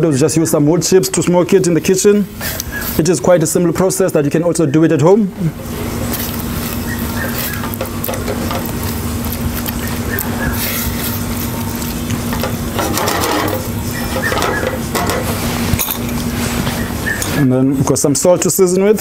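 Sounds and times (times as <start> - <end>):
low hum: 5.3 - 17.4
spatula stirring rice in a pot: 5.6 - 16.8.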